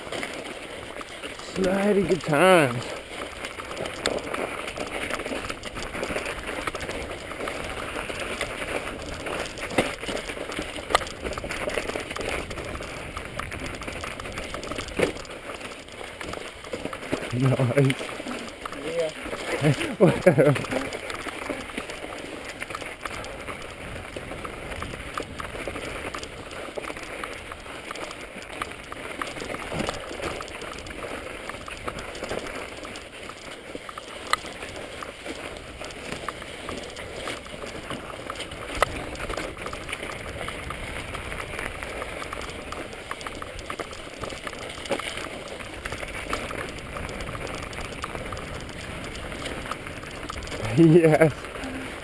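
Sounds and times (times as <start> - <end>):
bike rattling over bumps: 0.0 - 52.0
bike tyres crunching on snow: 0.0 - 52.0.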